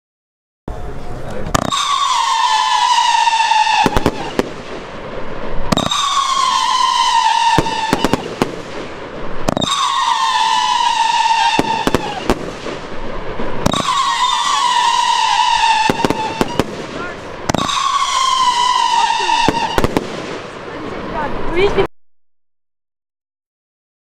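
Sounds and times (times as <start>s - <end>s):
firework bangs: 1.2s - 21.9s
firework whistles: 1.5s - 20.6s.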